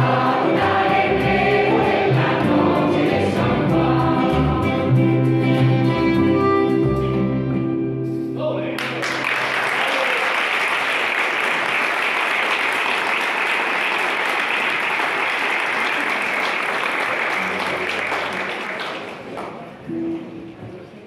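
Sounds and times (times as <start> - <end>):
choir singing with accompaniment: 0.0 - 6.1
audience applause: 8.8 - 19.7.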